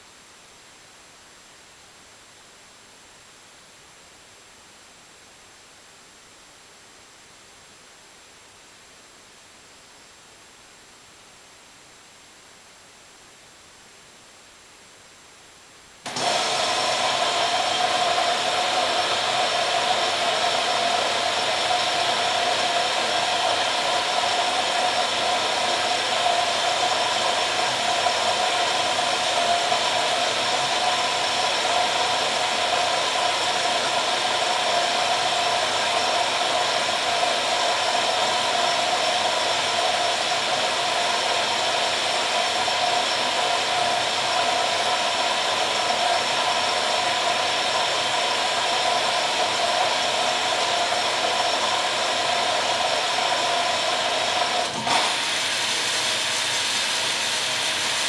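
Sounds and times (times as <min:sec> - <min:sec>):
washing machine filling with water: 0:52.8 - 0:58.0.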